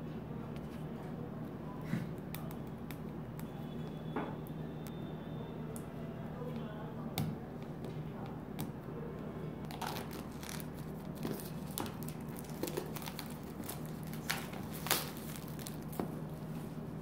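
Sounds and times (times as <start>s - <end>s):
plastic film crinkling and tearing: 9.7s - 16.2s.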